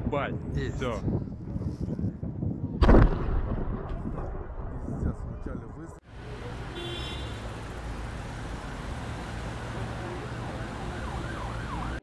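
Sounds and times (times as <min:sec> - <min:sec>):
low rumble: 0:02.8 - 0:06.0
siren wailing: 0:10.3 - 0:12.0.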